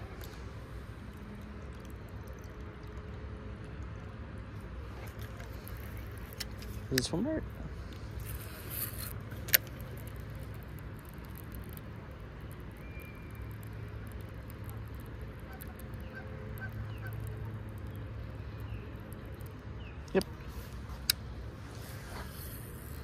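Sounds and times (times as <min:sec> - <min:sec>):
low outdoor background: 0:00.0 - 0:23.0
geese honking: 0:15.4 - 0:17.3.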